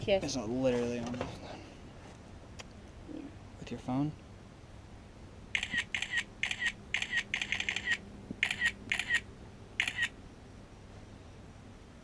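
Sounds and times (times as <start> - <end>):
phone camera shutter clicks: 5.6 - 10.2.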